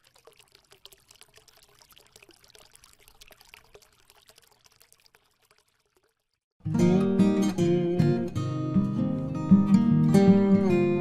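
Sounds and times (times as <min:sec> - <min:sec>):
water trickling: 0:00.0 - 0:06.6.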